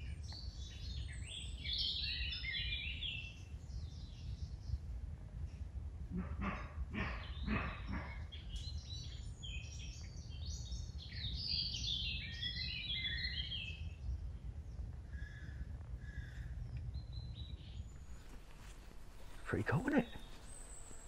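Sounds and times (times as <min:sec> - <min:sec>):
songbirds singing: 0:00.0 - 0:21.0
deer barking: 0:06.1 - 0:08.2, 0:18.0 - 0:21.0
wind rumble on microphone: 0:08.6 - 0:19.4.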